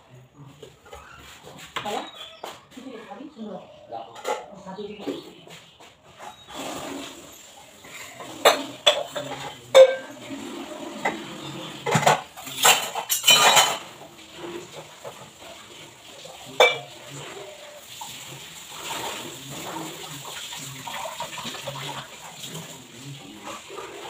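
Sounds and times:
steel utensils clinking: 6.3s - 24.0s.

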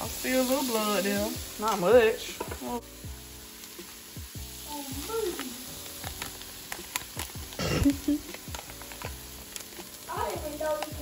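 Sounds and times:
meat sizzling in a frying pan: 0.0s - 11.0s
sharp popping of fat: 6.0s - 9.9s.

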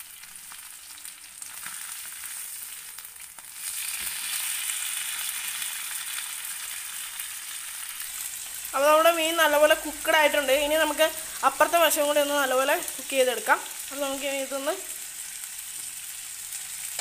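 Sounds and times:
fish sizzling and crackling in oil: 0.0s - 17.0s.

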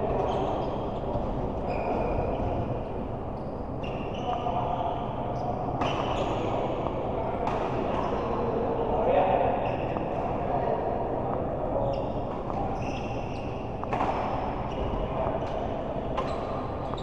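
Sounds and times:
sports hall background din: 0.0s - 17.0s
shoe squeaks: 0.2s - 2.7s, 3.4s - 6.9s, 9.6s - 10.1s, 11.8s - 17.0s.

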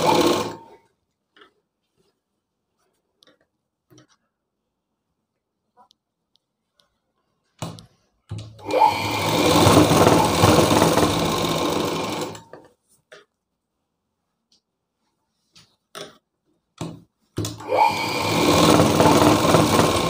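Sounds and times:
sewing machine stitching: 0.0s - 0.8s, 8.6s - 12.6s, 17.4s - 20.0s.

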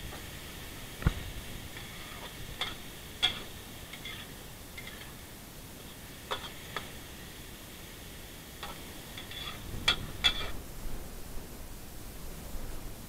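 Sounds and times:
faint steady hiss: 0.0s - 13.0s
metal spatula scraping wok: 1.7s - 5.2s, 5.8s - 7.0s, 8.6s - 10.6s.

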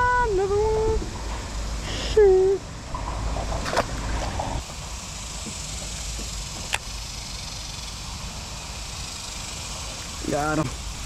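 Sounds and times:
water noise: 0.0s - 11.0s
wind: 0.0s - 11.0s
fish splashing into water: 3.0s - 4.6s.

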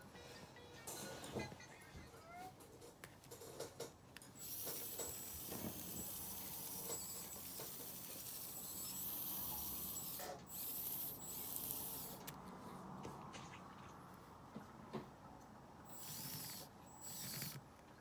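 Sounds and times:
tiny electric motors whirring: 4.4s - 12.3s, 15.9s - 17.6s.

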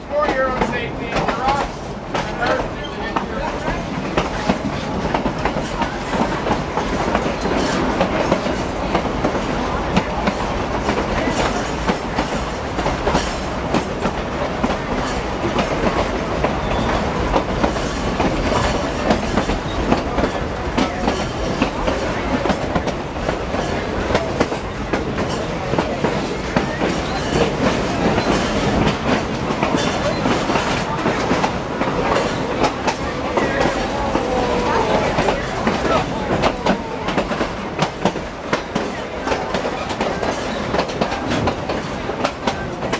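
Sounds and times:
train wheels rumbling on rail: 0.0s - 42.9s
wheels clicking and clacking: 0.1s - 42.9s.

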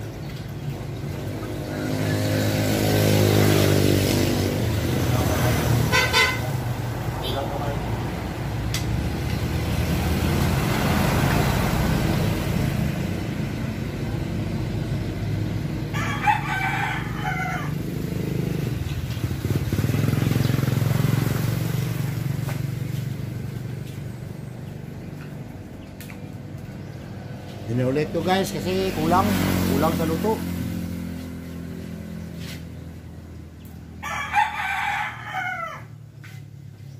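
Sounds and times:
vehicles passing: 0.0s - 36.9s
rooster crowing: 15.9s - 18.1s, 34.0s - 36.0s.

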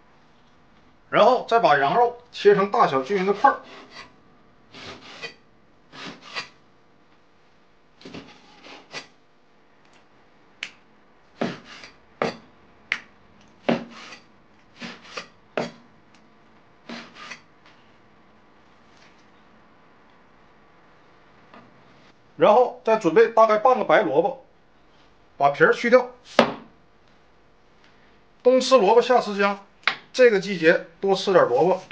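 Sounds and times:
cleaver cutting meat on board: 11.4s - 12.4s, 13.6s - 14.2s, 14.8s - 15.8s.

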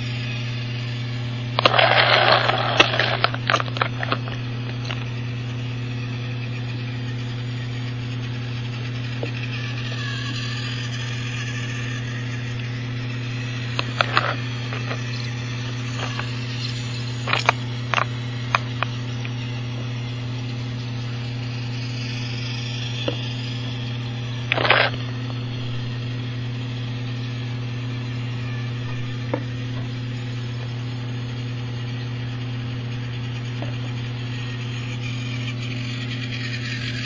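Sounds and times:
toy train motor whirring: 0.0s - 37.0s
short rattle: 1.6s - 5.1s.

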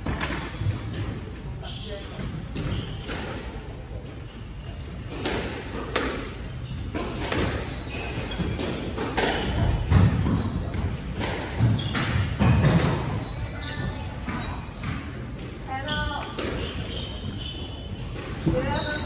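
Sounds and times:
shoes squeaking on wooden floor: 1.6s - 3.1s, 6.6s - 19.0s
squash ball smacking: 5.1s - 13.2s.

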